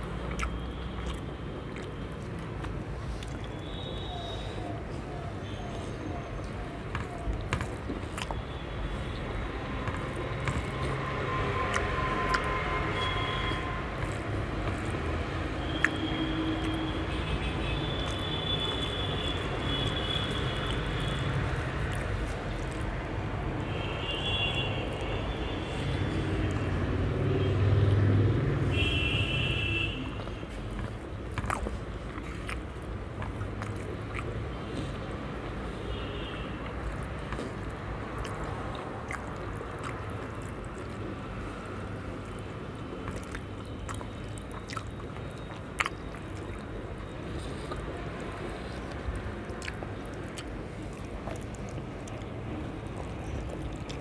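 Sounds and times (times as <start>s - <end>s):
fingers mixing food on plate: 9.2s - 23.6s.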